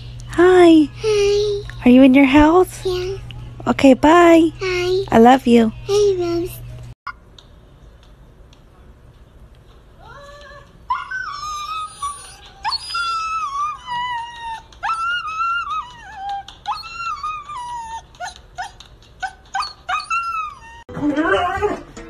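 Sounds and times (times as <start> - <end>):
dog whining howl-like cries: 10.9 - 20.9
dog yipping: 10.9 - 20.9.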